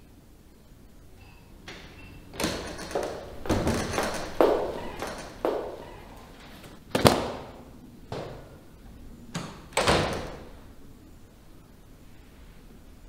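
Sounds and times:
knocks and thumps: 1.7s - 5.9s
wooden door swinging shut: 1.7s - 6.4s, 9.3s - 10.6s.

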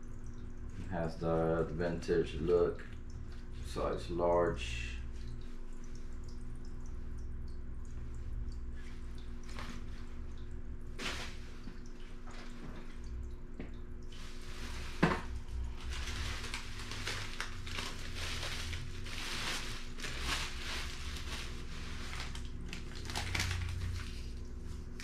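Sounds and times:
faint dripping water: 0.0s - 18.6s, 22.0s - 25.0s
steady low hum: 0.0s - 25.0s
clothes and plastic bag rustling: 8.8s - 10.2s, 10.9s - 13.0s, 14.1s - 25.0s.

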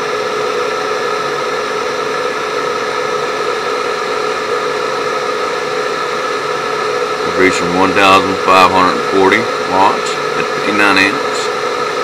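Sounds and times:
inverter whirring hum: 0.0s - 12.0s.

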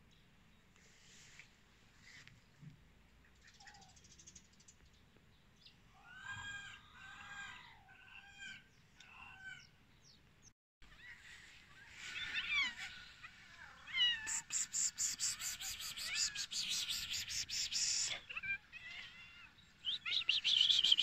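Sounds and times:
small birds chirping: 0.0s - 6.5s, 8.4s - 21.0s
short pitched animal calls: 11.9s - 19.1s.

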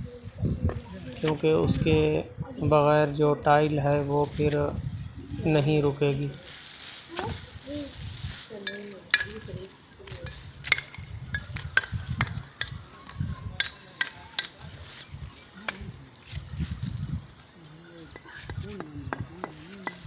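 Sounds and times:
roof tiles clacking underfoot: 8.4s - 16.5s, 17.3s - 20.0s.

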